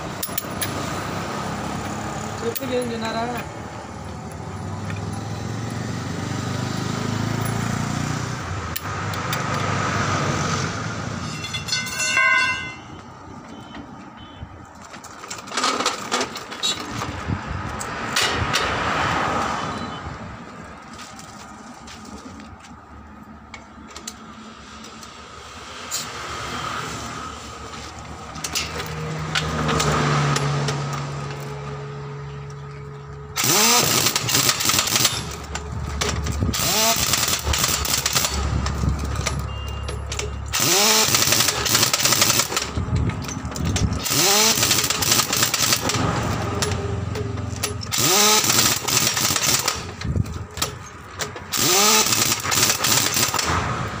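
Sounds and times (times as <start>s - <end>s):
road traffic passing: 0.0s - 54.0s
wheeled stand clanking and rattling: 11.2s - 12.9s, 14.8s - 17.3s, 32.9s - 53.6s.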